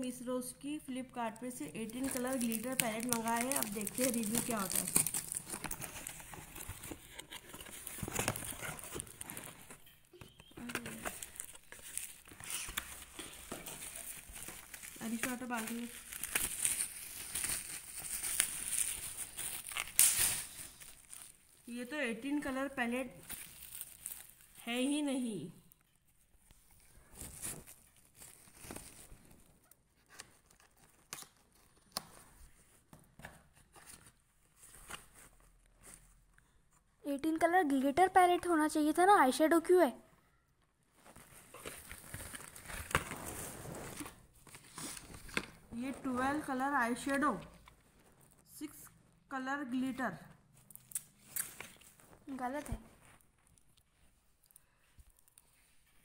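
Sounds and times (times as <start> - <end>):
cardboard and cellophane rustling: 1.2 - 24.9, 26.2 - 36.3, 40.9 - 48.5.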